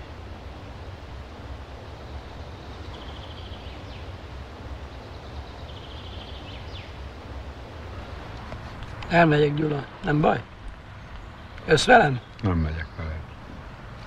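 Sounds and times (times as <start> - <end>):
outdoor rumble and hiss: 0.0 - 14.0
songbird trilling: 2.0 - 7.1.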